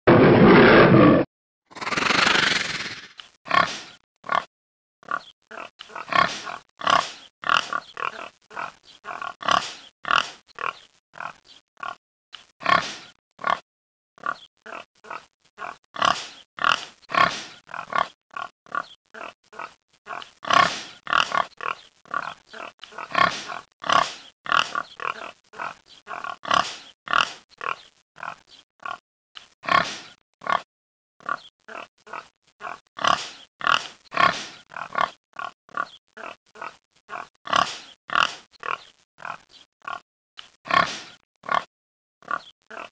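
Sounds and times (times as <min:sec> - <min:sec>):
wild boars grunting: 0:05.1 - 0:12.0, 0:14.2 - 0:29.0, 0:29.6 - 0:30.6, 0:31.3 - 0:40.0, 0:40.7 - 0:41.7.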